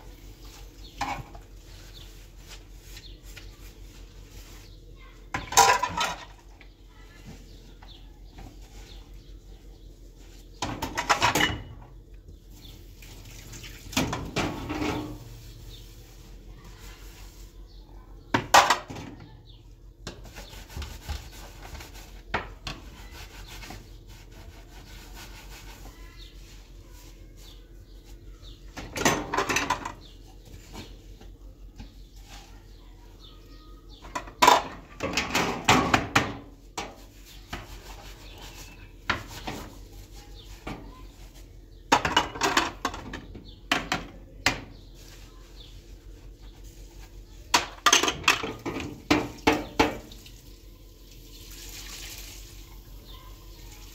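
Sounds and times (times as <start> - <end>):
rough scraping and rubbing: 20.2 - 28.1, 37.0 - 41.4.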